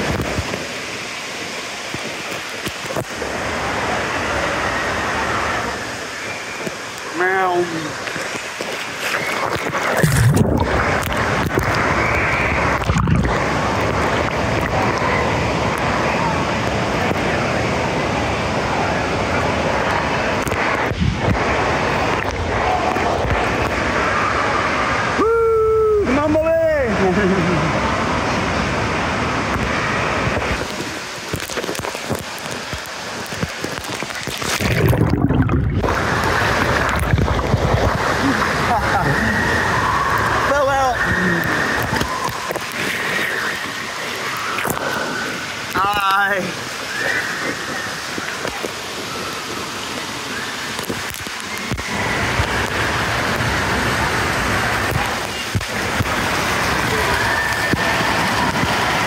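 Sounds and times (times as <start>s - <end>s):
water sloshing and splashing: 0.0s - 25.2s, 27.4s - 59.0s.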